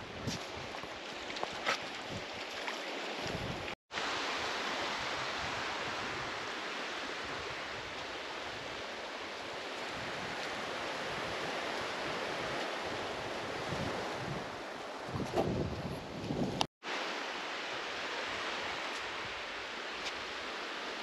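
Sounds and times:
wind on microphone: 0.0s - 1.0s, 3.2s - 16.7s
surf washing on beach: 0.0s - 21.0s.

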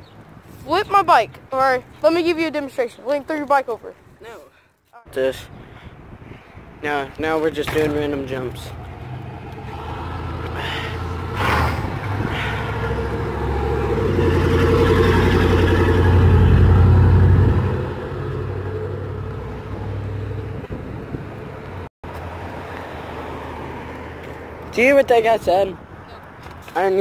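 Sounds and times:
pickup truck engine passing: 7.9s - 21.6s.

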